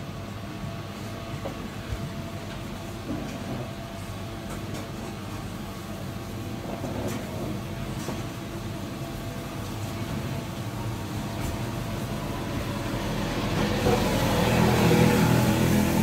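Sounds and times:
street traffic rumble: 7.7s - 16.0s.

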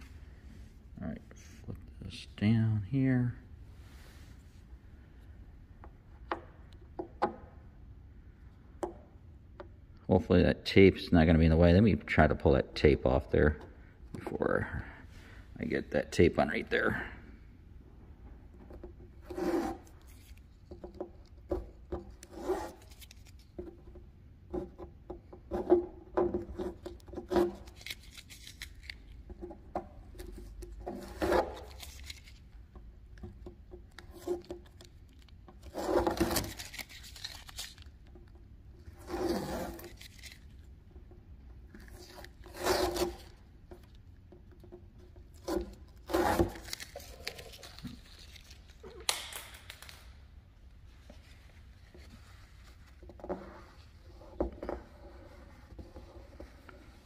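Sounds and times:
tape scraping and rustling: 18.5s - 57.0s
tape ripping: 19.3s - 20.7s, 22.0s - 23.5s, 26.7s - 29.2s, 30.9s - 32.5s, 33.9s - 38.0s, 38.8s - 40.7s, 41.8s - 43.5s, 45.4s - 50.2s.

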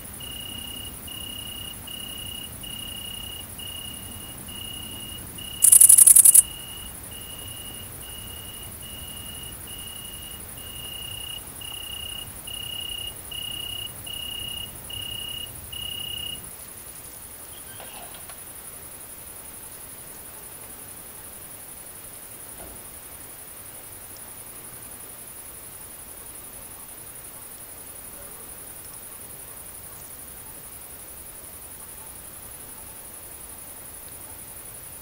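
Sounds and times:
low cricket chirping: 0.0s - 35.0s
loud cricket stridulation burst: 0.1s - 17.2s
high-pitched cricket buzzing: 0.2s - 17.8s.

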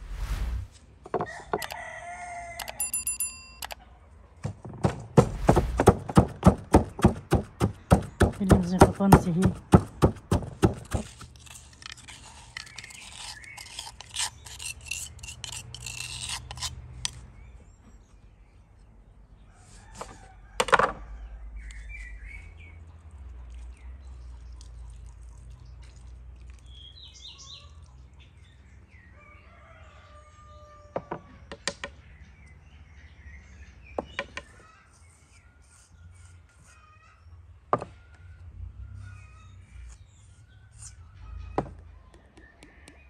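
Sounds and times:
rooster crowing: 1.2s - 2.9s, 29.2s - 31.4s
sharp knock: 4.8s - 11.0s
wooden spoon scraping a mortar: 5.2s - 17.2s, 34.5s - 37.0s, 39.7s - 41.2s
birds chirping: 5.4s - 11.2s.

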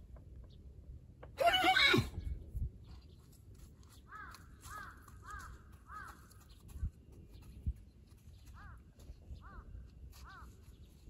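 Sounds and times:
horse whinnying: 1.4s - 2.2s.

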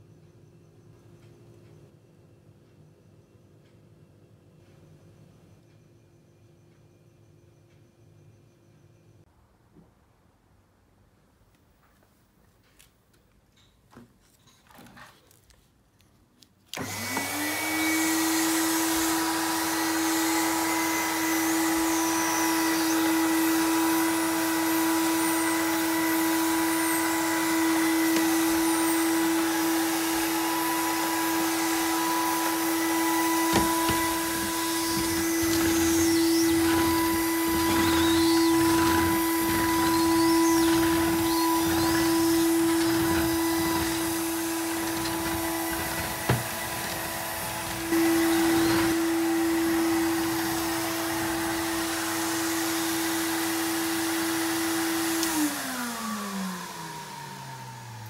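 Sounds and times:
vacuum cleaner motor humming: 16.8s - 58.0s
floor brush knocking and rubbing: 28.1s - 49.1s.

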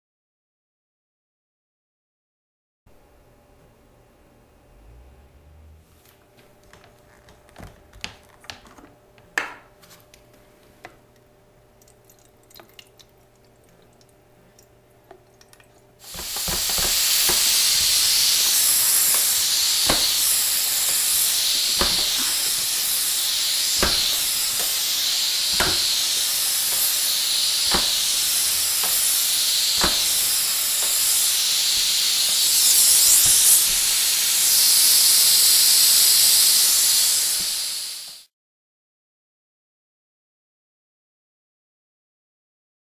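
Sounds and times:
steam mop hissing: 16.0s - 38.3s
mop knocking: 16.1s - 32.5s.

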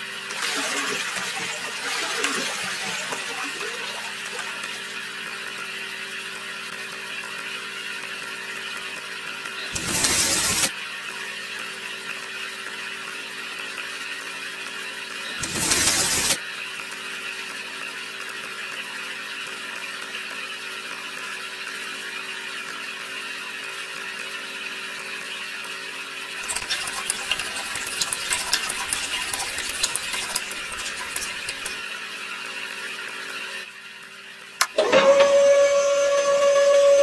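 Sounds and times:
small motor whining: 2.3s - 10.8s, 14.9s - 16.4s, 34.6s - 37.0s
gritty rattling of turning drum: 26.4s - 31.8s.

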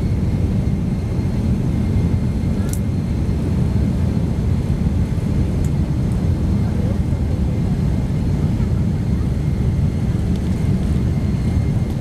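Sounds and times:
airliner cabin low rumble: 0.0s - 12.0s.

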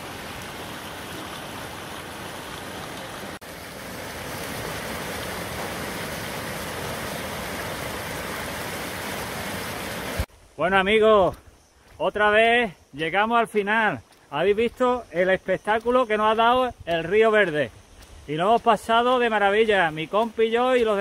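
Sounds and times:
rushing river water: 0.0s - 10.3s, 14.7s - 21.0s.

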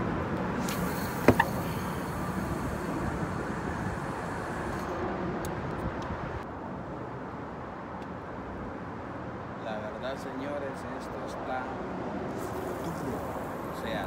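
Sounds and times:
road traffic noise: 0.0s - 14.0s.

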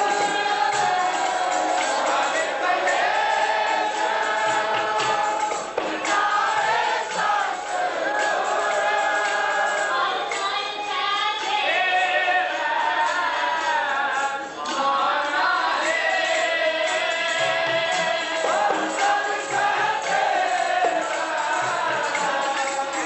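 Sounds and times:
woman singing a hymn: 0.0s - 1.5s, 9.9s - 12.2s
voices singing together: 0.0s - 23.0s.

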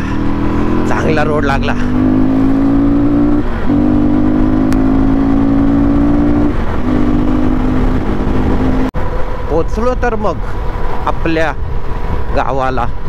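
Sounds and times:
motorcycle engine droning: 0.0s - 9.6s.

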